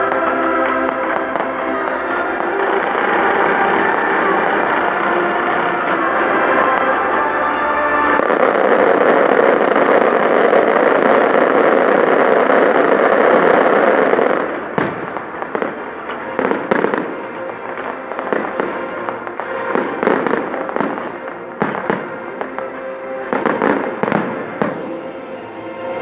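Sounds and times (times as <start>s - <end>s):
fireworks pops and bangs: 8.0s - 25.0s.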